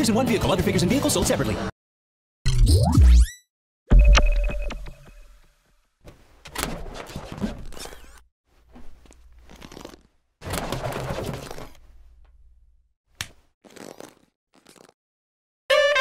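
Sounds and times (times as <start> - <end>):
rubber balloons squeaking: 9.4 - 11.8, 13.6 - 15.0.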